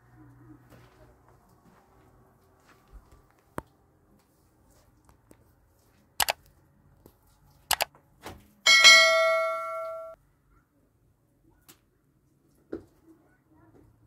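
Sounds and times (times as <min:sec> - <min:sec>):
metal object ringing: 0:08.7 - 0:10.2.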